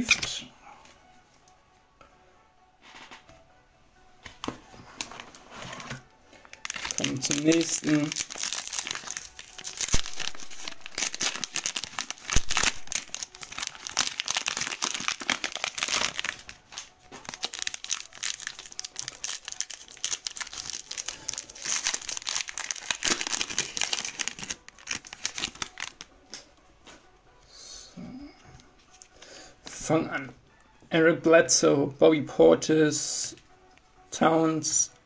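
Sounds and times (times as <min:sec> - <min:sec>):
foil wrapper crinkling: 0:05.0 - 0:26.1.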